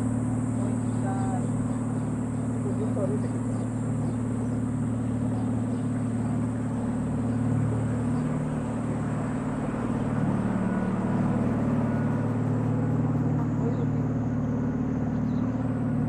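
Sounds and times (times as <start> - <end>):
engine humming steadily: 0.0 - 16.0.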